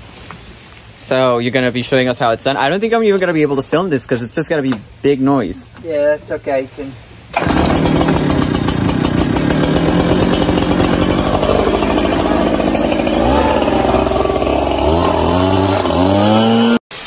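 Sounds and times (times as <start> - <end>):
leaf blower engine running: 7.3 - 16.8.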